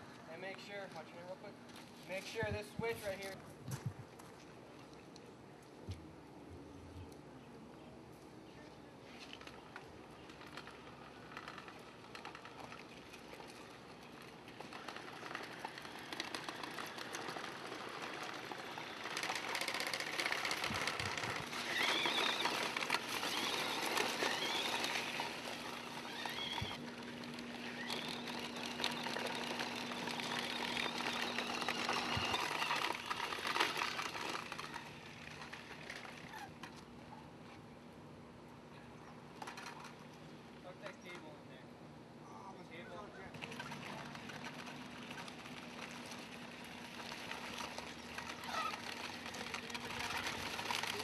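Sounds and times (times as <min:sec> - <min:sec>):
electric motor hum: 0:10.5 - 0:36.8
tracks crunching gravel: 0:14.9 - 0:35.8.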